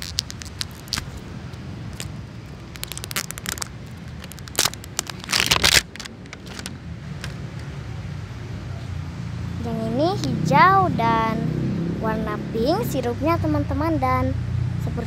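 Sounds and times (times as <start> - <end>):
plastic wrapping crinkling and tearing: 0.0 - 1.2, 1.9 - 7.3
low background rumble: 0.0 - 8.9.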